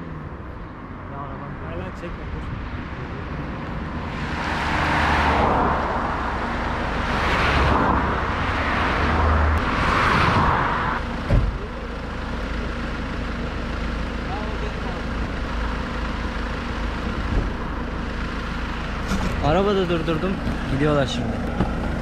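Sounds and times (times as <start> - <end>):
cars passing on a highway: 0.0 - 22.0
low engine rumble: 5.3 - 22.0
short thump: 11.2 - 11.6, 21.5 - 21.8.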